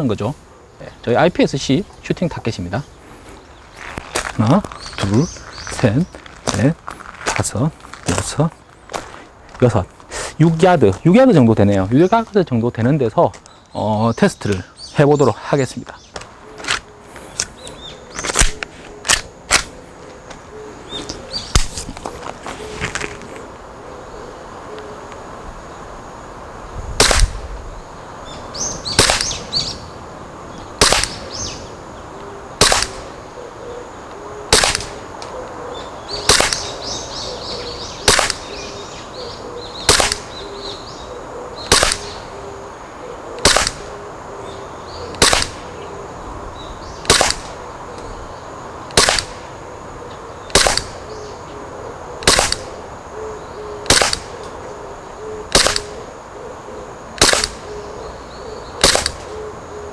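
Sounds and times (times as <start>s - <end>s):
faint birds chirping: 0.0s - 59.9s
airsoft pistol shots: 27.0s - 27.4s, 28.9s - 29.4s, 30.8s - 31.3s, 32.6s - 33.0s, 34.5s - 35.0s, 36.2s - 36.7s, 38.0s - 38.5s, 39.8s - 40.4s, 41.7s - 42.2s, 43.4s - 43.9s, 45.2s - 45.6s, 47.0s - 47.6s, 48.9s - 49.4s, 50.5s - 51.0s, 52.2s - 52.7s, 53.9s - 54.3s, 55.5s - 56.0s, 57.2s - 57.6s, 58.8s - 59.3s.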